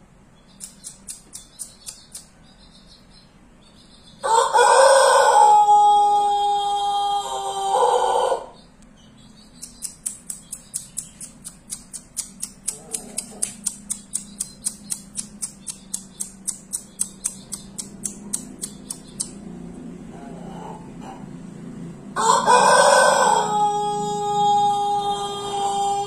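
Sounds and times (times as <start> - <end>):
sharp high-pitched ticks: 0.5 - 2.8, 9.4 - 19.5
rooster crowing: 4.2 - 8.6, 22.1 - 26.0.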